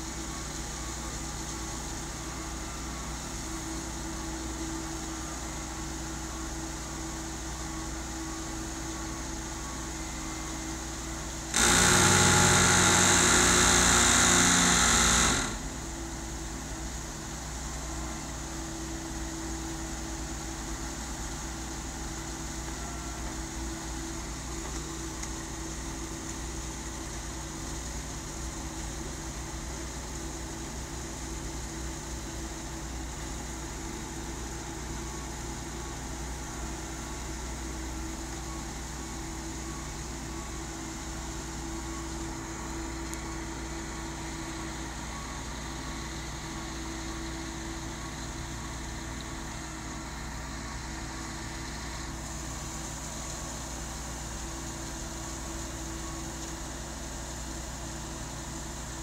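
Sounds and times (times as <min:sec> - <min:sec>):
loud burst of noise: 0:11.5 - 0:15.9.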